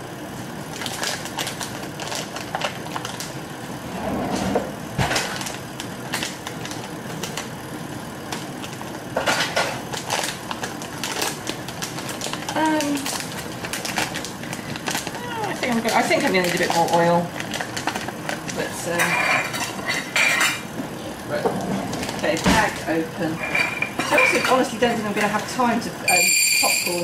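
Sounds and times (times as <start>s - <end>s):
plastic bag crinkling: 0.7s - 3.4s, 9.9s - 18.7s.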